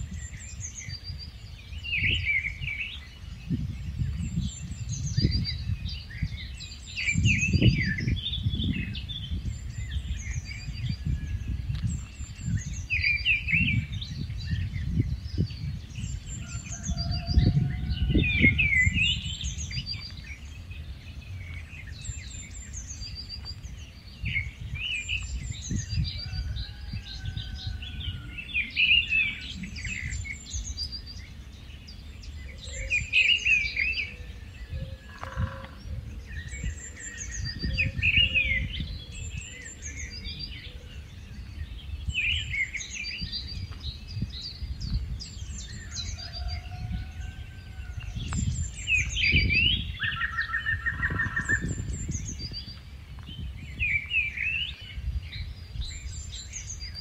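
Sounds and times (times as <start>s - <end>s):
bird singing high song phrases: 0.0s - 57.0s.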